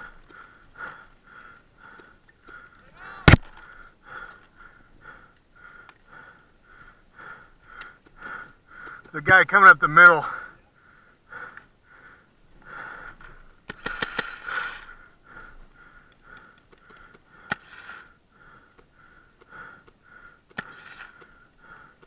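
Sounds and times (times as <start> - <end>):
fast breathing close up: 0.0 - 9.2, 10.2 - 22.0
paintball gun pops: 3.2 - 3.7.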